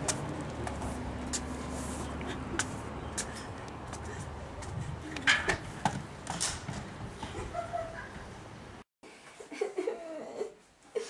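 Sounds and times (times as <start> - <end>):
footsteps on concrete steps: 0.0 - 7.6.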